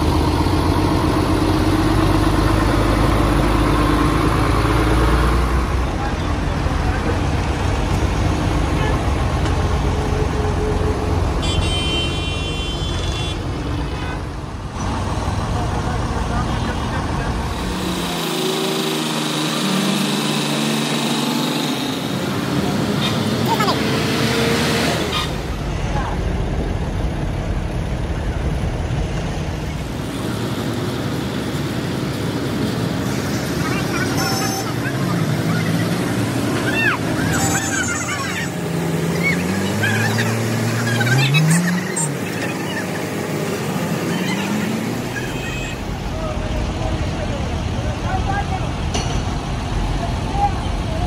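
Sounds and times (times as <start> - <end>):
heavy machinery engine running: 0.0 - 11.4
diesel engines rumbling: 0.0 - 51.0.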